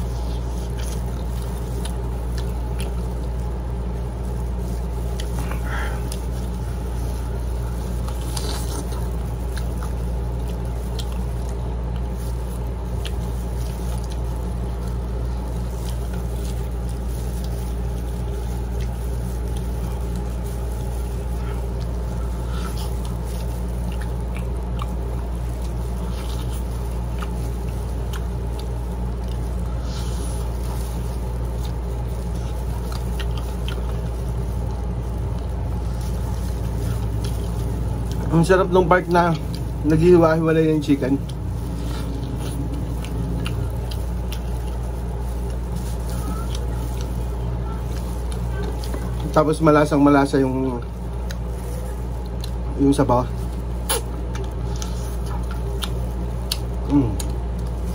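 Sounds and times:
chewing and lip-smacking: 0:00.0 - 0:49.4, 0:50.8 - 0:52.8, 0:53.4 - 0:57.9
steady low hum: 0:00.0 - 0:57.9.

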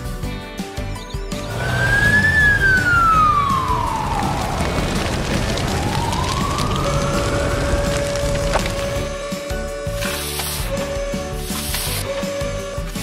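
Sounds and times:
toy electronic siren wailing: 0:01.8 - 0:04.6, 0:05.7 - 0:11.4.

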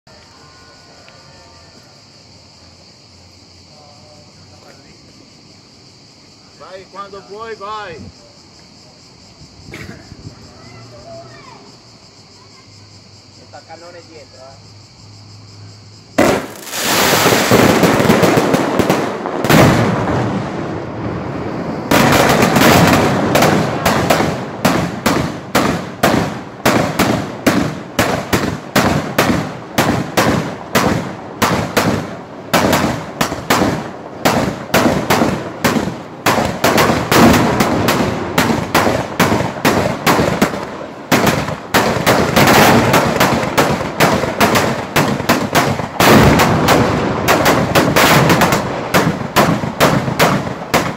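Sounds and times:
loud mortar blasts: 0:16.1 - 0:50.9
fast chain of sharp bangs: 0:21.9 - 0:50.9.

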